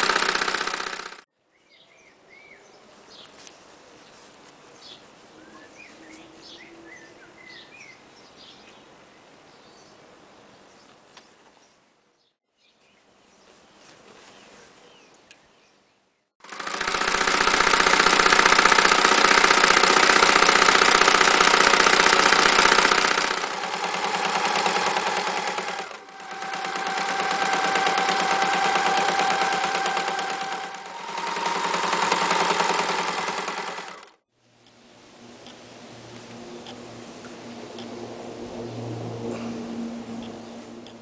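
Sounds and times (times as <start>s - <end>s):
sewing machine stitching: 0.0s - 1.2s, 16.4s - 34.2s.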